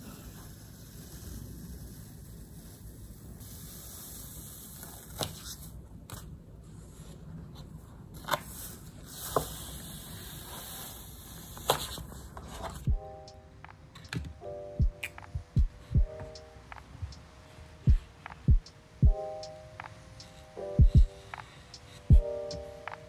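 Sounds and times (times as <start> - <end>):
soft music: 12.0 - 23.0.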